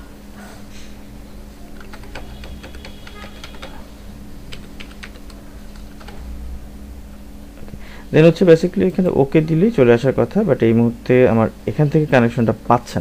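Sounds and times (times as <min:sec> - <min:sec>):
steady low hum: 0:00.0 - 0:13.0
keyboard typing: 0:01.7 - 0:06.3.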